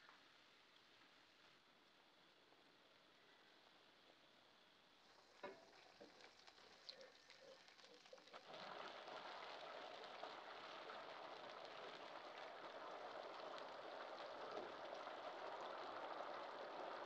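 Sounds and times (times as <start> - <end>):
sauce bubbling and sizzling: 4.9 - 17.0.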